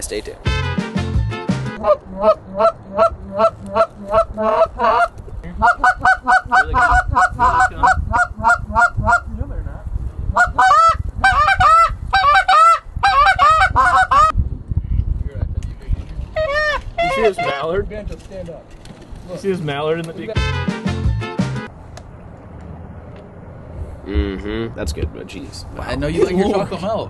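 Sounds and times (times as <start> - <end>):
goose call honks: 0.5 - 0.9, 1.7 - 9.3, 10.3 - 14.3, 16.4 - 17.7
goose call clucks: 1.8 - 9.3, 10.3 - 14.3, 16.4 - 17.7.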